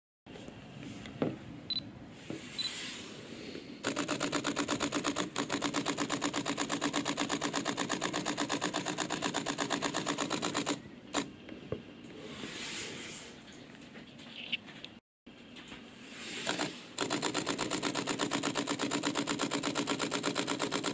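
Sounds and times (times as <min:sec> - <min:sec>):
camera shutter burst clicks: 0:03.8 - 0:11.3, 0:16.4 - 0:20.9.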